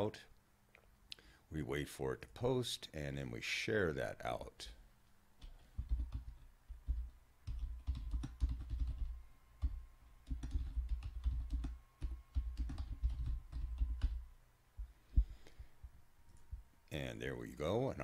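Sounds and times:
typing on keyboard: 5.4 - 14.2.

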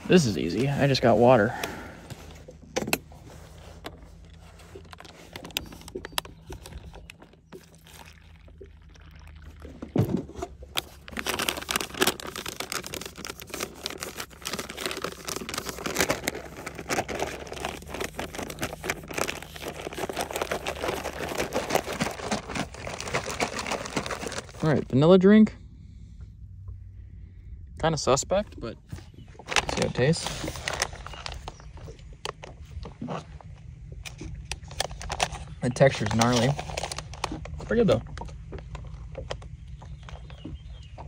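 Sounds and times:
liquid sloshing: 0.0 - 24.6
pouch crinkling: 3.1 - 24.9, 29.4 - 33.2, 34.6 - 37.7
water pouring into pouch: 4.1 - 24.9.

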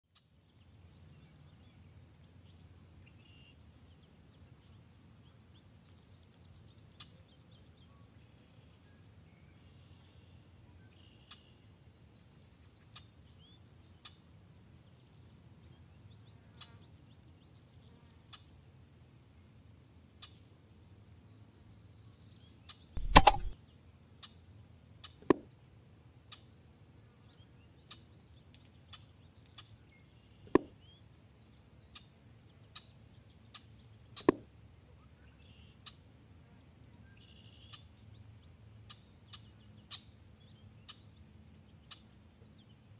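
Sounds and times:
small clicks: 23.0 - 23.6.

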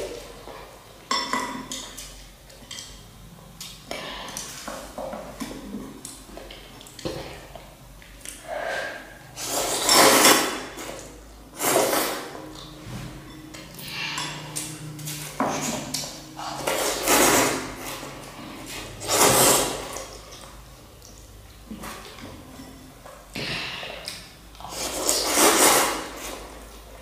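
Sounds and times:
person slurping noodles: 8.4 - 10.8, 18.6 - 20.1, 23.5 - 26.5.

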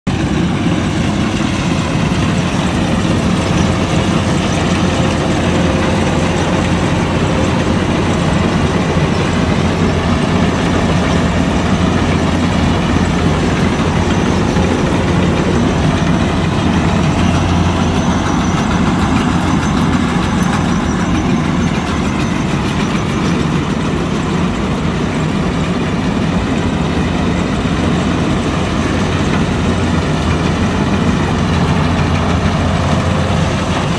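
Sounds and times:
combine harvester droning: 0.1 - 33.9.

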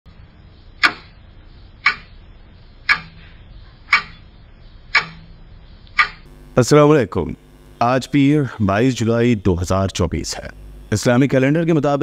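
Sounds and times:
countdown timer ticking: 1.8 - 2.1, 2.8 - 3.2, 3.9 - 4.2, 4.9 - 5.3.

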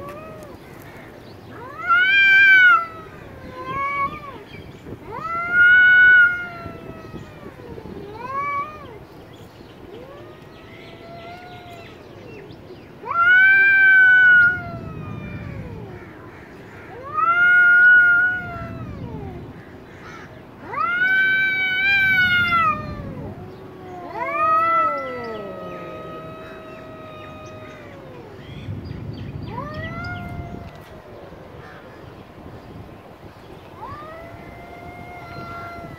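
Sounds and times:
cats yowling: 0.0 - 35.9.

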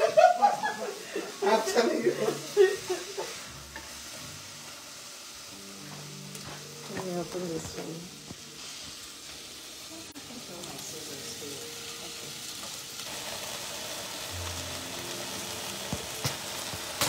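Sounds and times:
vegetables sizzling in pot: 0.0 - 17.0.

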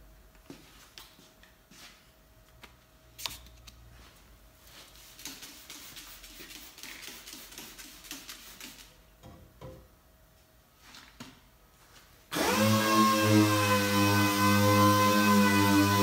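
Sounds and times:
spray bottle squirting water: 5.1 - 9.0.

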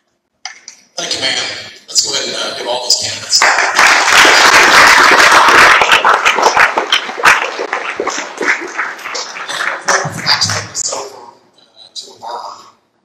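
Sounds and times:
audience applauding: 3.3 - 11.0.

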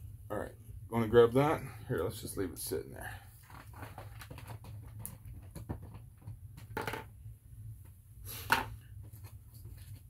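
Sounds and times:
plastic figures knocking on table: 4.4 - 7.1.

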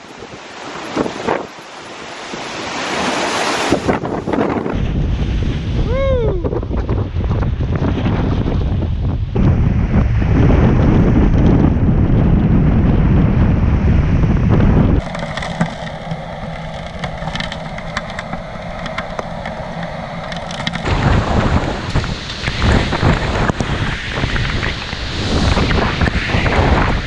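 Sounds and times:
crashing surf: 0.0 - 27.0
wind buffeting microphone: 0.0 - 27.0
rain pattering on camera: 15.0 - 26.5.

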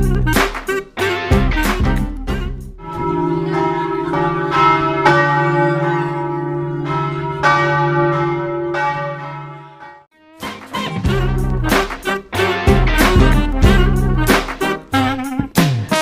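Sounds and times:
church bells ringing: 2.8 - 10.1.

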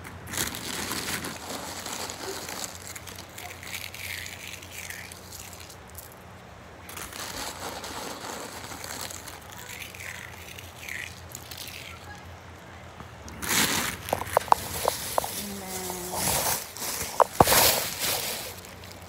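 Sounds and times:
plastic bag rustling: 0.0 - 6.2, 6.8 - 12.2, 13.3 - 19.0.

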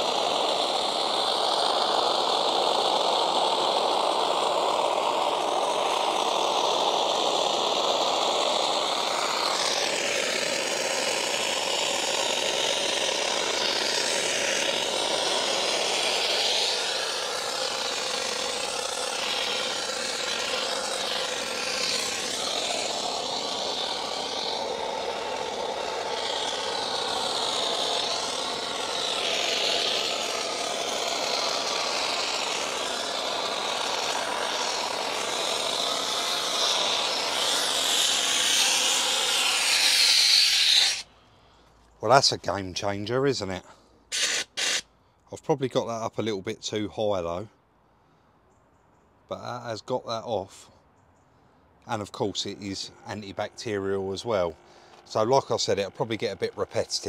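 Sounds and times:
steam cleaner hissing: 0.0 - 41.1, 44.1 - 44.8, 51.9 - 57.0.

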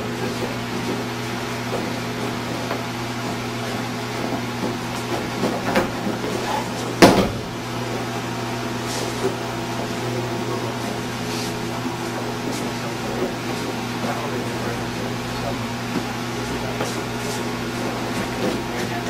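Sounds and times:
steady hum: 0.0 - 19.0
body thumping on padded mat: 4.2 - 7.5.

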